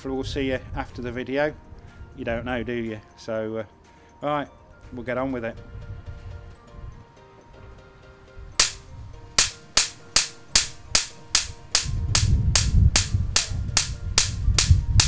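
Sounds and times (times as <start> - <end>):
igniter plug sparking snaps: 8.6 - 8.8, 9.4 - 14.7.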